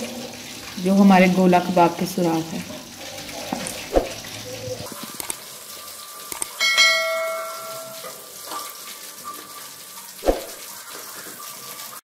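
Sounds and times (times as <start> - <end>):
bell ding: 6.6 - 8.2.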